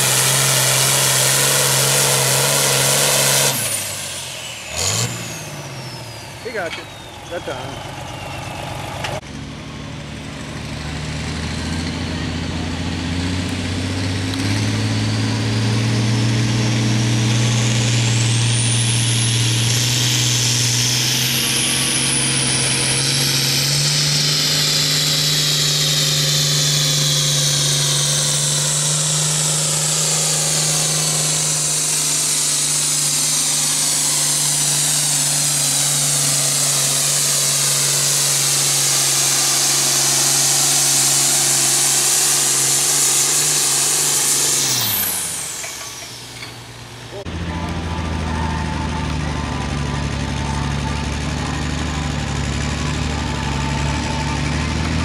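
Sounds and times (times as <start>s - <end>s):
tractor diesel engine at full throttle: 0.0s - 55.0s
high whine: 15.1s - 55.0s.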